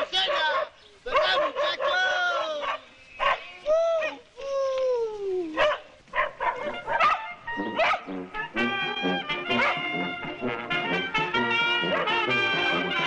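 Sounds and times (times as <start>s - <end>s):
man shouting: 0.0s - 2.7s
man hollering: 1.2s - 2.7s.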